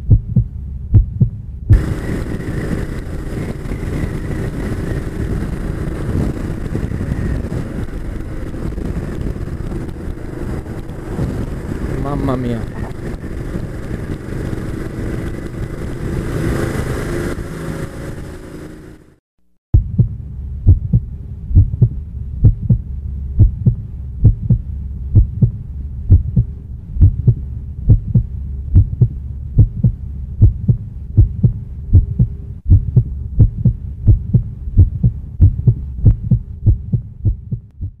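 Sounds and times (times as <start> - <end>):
heavy low heartbeat thuds: 0.0 - 2.0, 19.8 - 38.0
steady low hum: 0.0 - 16.2, 19.8 - 38.0.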